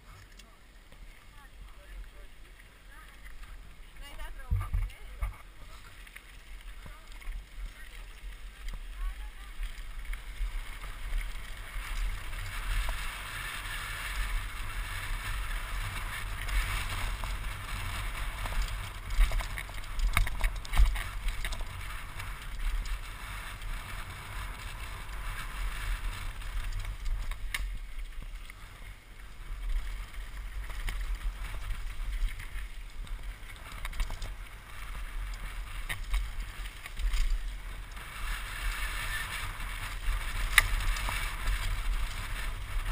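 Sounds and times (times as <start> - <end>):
tyre hiss on gravel: 5.5 - 42.9
bike clicks and knocks: 13.9 - 28.8, 29.6 - 42.9.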